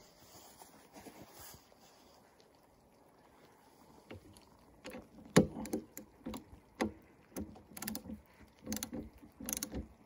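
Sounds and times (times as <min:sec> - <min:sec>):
ratchet wrench clicking: 0:07.4 - 0:09.8.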